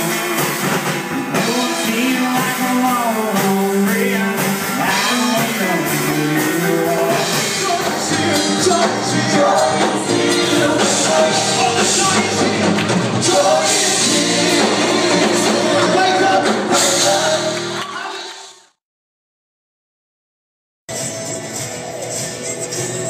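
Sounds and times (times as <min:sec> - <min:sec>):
live rock band with vocals: 0:00.0 - 0:18.4
singers with band accompaniment: 0:00.0 - 0:18.5.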